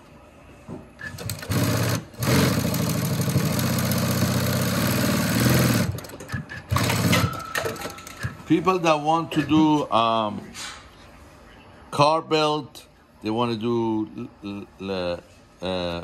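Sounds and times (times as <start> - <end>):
sewing machine stitching: 1.0 - 7.9.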